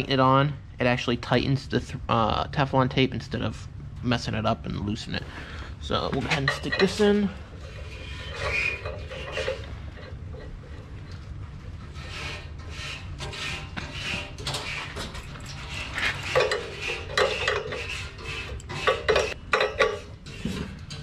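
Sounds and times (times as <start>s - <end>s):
metal clinking and scraping: 5.9s - 21.0s.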